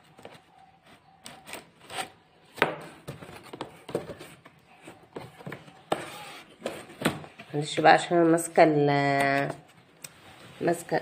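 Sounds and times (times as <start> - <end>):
cardboard scraping and rubbing: 3.1 - 7.6.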